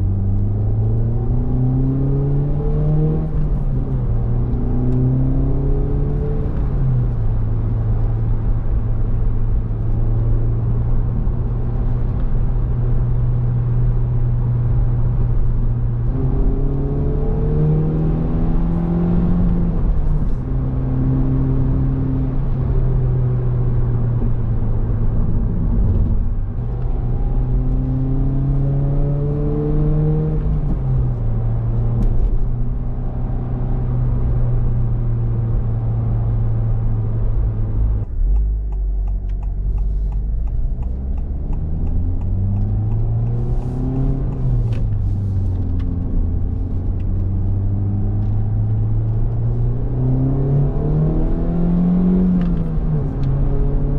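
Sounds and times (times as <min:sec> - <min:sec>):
car engine accelerating: 0:00.0 - 0:53.9.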